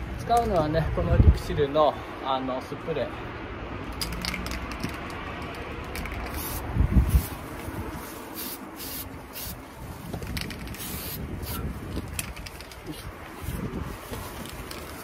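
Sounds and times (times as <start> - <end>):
aerosol paint spraying: 6.1 - 9.6, 10.7 - 11.6.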